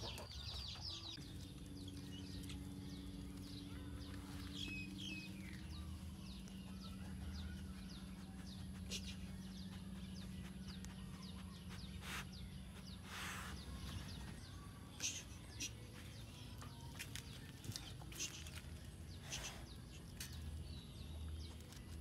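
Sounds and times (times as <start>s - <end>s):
steady low hum: 0.0s - 22.0s
faint bird chirps: 1.9s - 16.8s.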